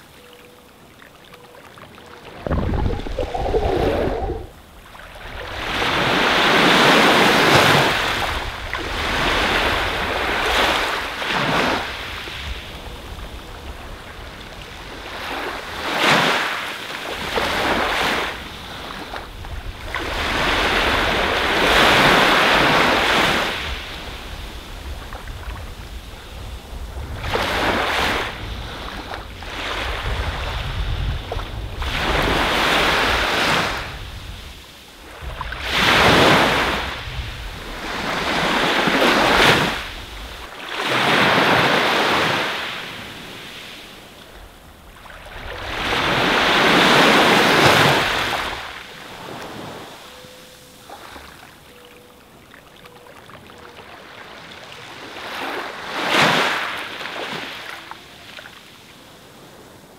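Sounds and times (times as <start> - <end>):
small waves breaking on beach: 0.0 - 59.9
wind rumbling on microphone: 2.2 - 15.9, 17.2 - 43.3.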